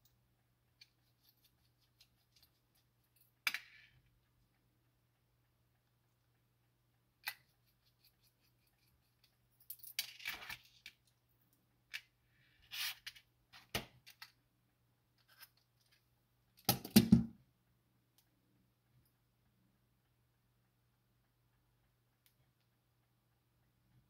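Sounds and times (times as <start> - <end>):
small metal clicks and scrapes: 0.0 - 4.1, 7.2 - 11.2, 15.2 - 16.1.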